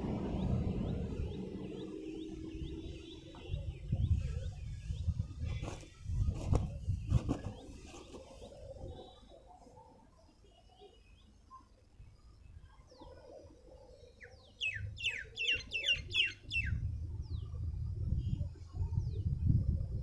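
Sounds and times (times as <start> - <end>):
low rumble on microphone: 0.0 - 7.8, 16.6 - 20.0
bird calling: 12.7 - 16.8.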